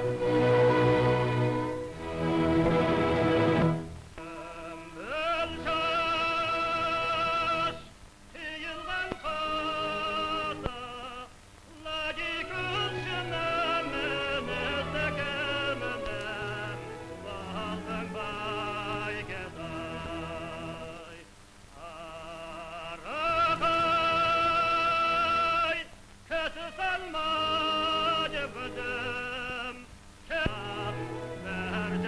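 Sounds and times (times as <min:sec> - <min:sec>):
woman singing opera: 0:04.2 - 0:21.2.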